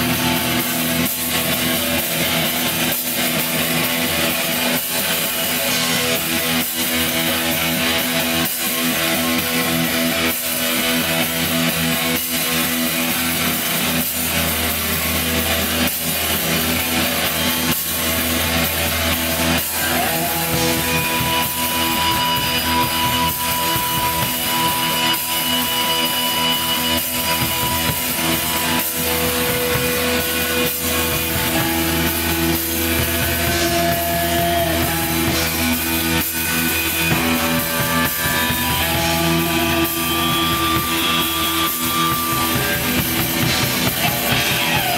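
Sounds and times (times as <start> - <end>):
distorted electric guitars: 0.0 - 44.9
drum kit: 0.0 - 44.9.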